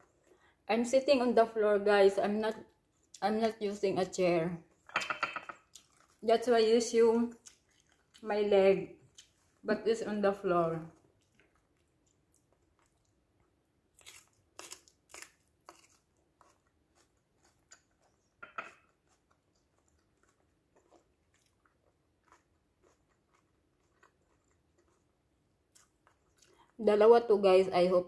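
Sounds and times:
faint chewing: 0:05.5 - 0:06.4, 0:07.2 - 0:08.3, 0:08.9 - 0:09.7, 0:10.7 - 0:26.8
pepper crunching: 0:13.9 - 0:26.5.

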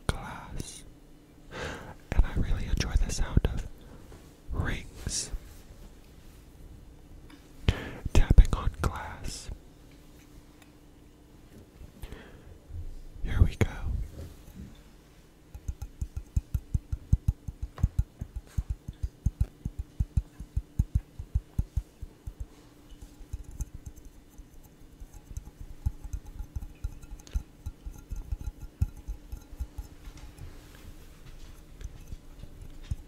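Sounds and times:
fingertips tapping on glass: 0:13.6 - 0:33.0.

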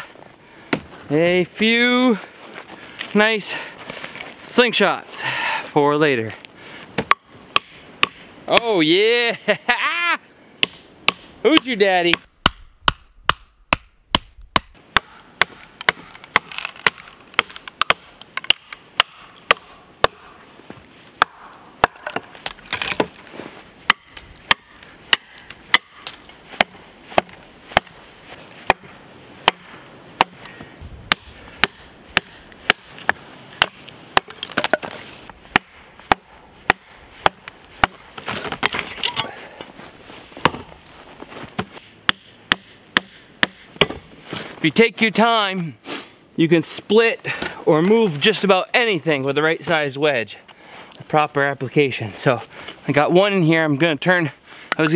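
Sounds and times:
mallet hammering wedges into log: 0:07.0 - 0:08.7, 0:10.6 - 0:20.3, 0:23.9 - 0:28.0, 0:28.7 - 0:30.4, 0:31.1 - 0:32.9, 0:33.6 - 0:38.0, 0:41.6 - 0:44.0.

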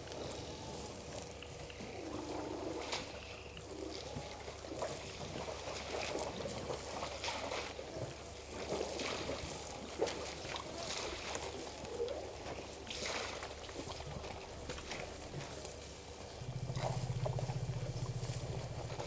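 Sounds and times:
rustling in dry grass: 0:00.0 - 0:13.7, 0:14.3 - 0:19.0
small crackles: 0:00.0 - 0:19.0.

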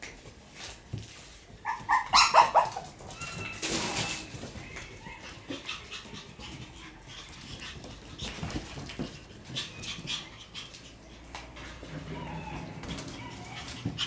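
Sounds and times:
paws clicking on hard floor: 0:00.0 - 0:14.0
puppy whining: 0:01.6 - 0:07.9, 0:09.4 - 0:14.0
puppies panting: 0:04.6 - 0:14.0.

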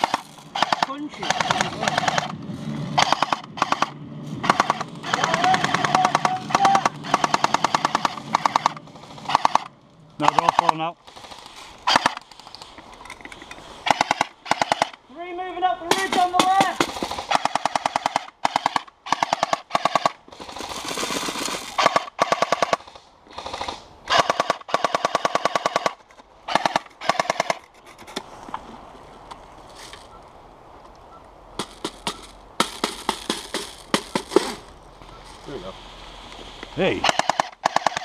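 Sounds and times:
airsoft machine gun bursts: 0:00.0 - 0:02.3, 0:03.0 - 0:12.2, 0:37.0 - 0:38.0.

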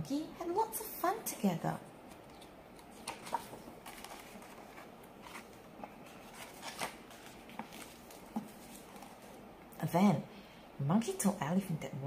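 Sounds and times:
faint paper rustles: 0:02.0 - 0:09.4
book page turning: 0:02.1 - 0:09.4.

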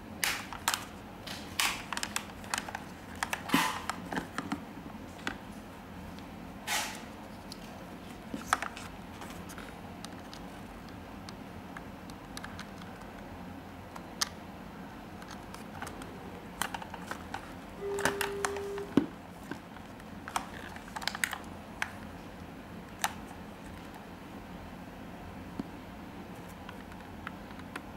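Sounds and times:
headphones being handled: 0:01.9 - 0:05.5
steady beep: 0:17.8 - 0:19.0.

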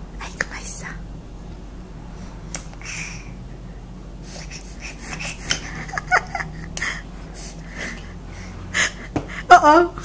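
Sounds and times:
steady low hum: 0:00.0 - 0:10.0.

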